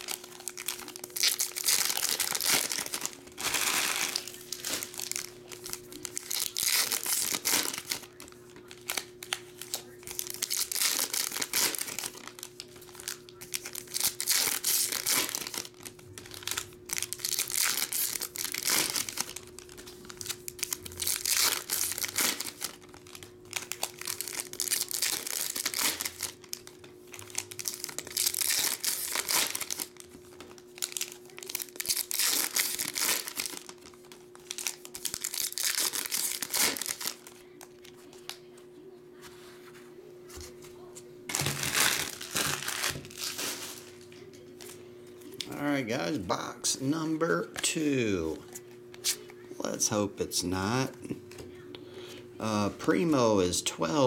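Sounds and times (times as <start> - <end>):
foil wrappers tearing and crinkling: 0.0 - 38.5, 41.3 - 44.8.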